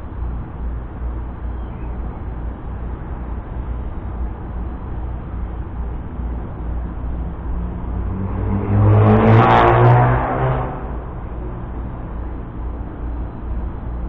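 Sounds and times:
vehicle passing by: 6.8 - 12.6.

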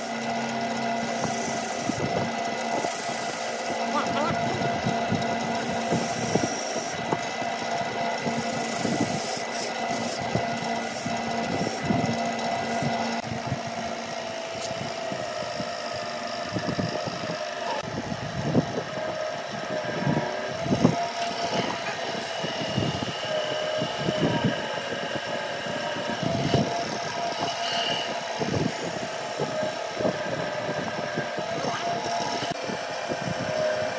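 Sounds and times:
chisel scraping spinning wood: 0.0 - 13.7, 20.5 - 32.6
wire rubbing on spinning wood: 0.0 - 14.0, 18.6 - 33.9
wood lathe motor hum: 0.0 - 33.9.

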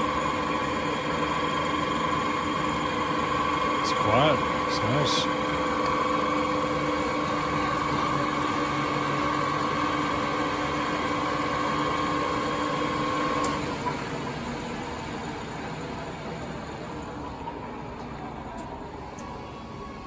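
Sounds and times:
lathe humming: 0.0 - 15.9.

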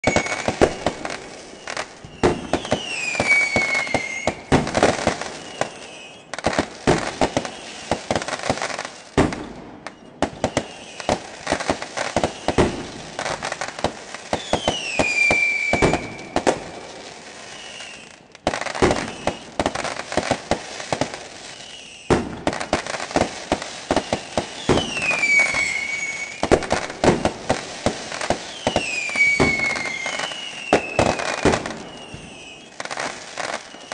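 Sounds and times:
falling whistle: 0.0 - 0.6, 1.4 - 6.4, 9.8 - 11.2, 14.4 - 16.5, 17.4 - 18.2, 18.9 - 19.6, 21.5 - 22.1, 23.8 - 26.4, 28.5 - 33.9
fireworks banging and crackling: 0.0 - 33.9.

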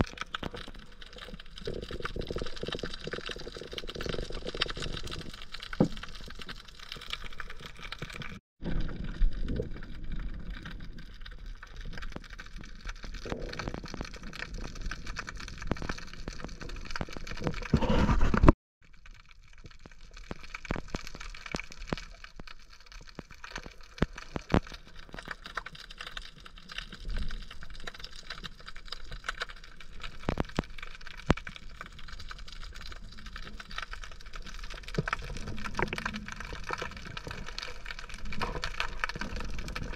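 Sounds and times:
underwater water noise: 0.0 - 39.9
sharp little clicks underwater: 10.4 - 39.9.

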